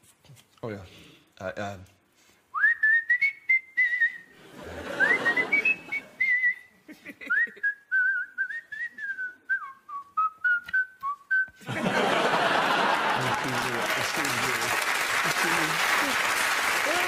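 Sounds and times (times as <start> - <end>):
man whistling a tune: 2.5 - 4.3, 4.9 - 6.7, 7.3 - 11.6
audience laughter: 4.4 - 6.2, 11.6 - 14.6
audience applause: 11.8 - 17.0.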